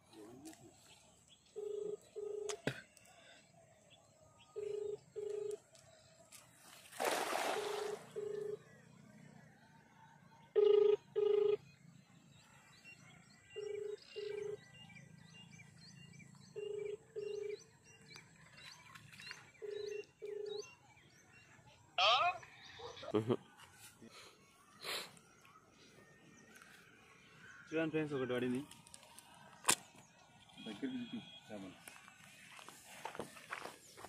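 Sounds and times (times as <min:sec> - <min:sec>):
telephone ringing beeps: 0:01.6 - 0:02.6, 0:04.5 - 0:05.6, 0:07.6 - 0:08.7, 0:10.5 - 0:11.6, 0:13.5 - 0:14.6, 0:16.5 - 0:17.6, 0:19.6 - 0:20.7
net splashing into water: 0:06.8 - 0:08.1.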